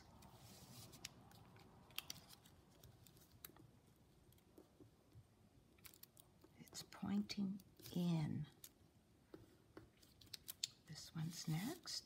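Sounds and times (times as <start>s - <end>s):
paper being folded: 0.0s - 3.6s.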